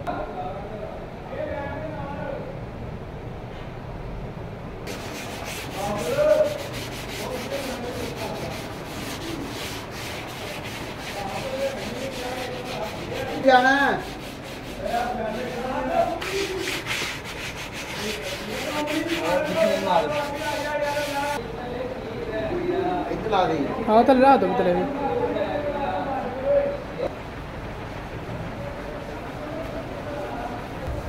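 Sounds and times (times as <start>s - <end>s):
pad rubbing on clay: 4.9s - 21.4s.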